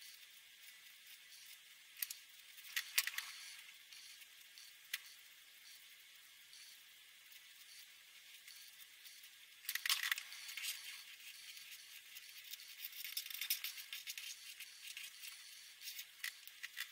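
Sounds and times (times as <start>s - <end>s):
marker scratching on paper: 10.2s - 16.9s.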